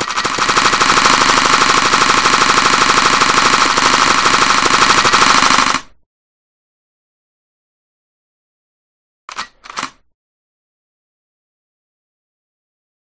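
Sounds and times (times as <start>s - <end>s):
rapid looped gunshot sound effect: 0.0s - 6.0s.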